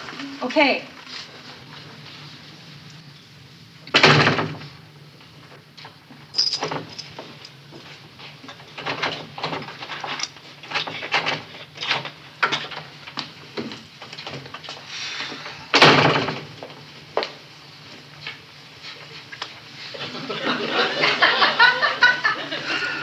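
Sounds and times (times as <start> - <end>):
door shutting: 3.9 - 4.8, 15.1 - 16.6.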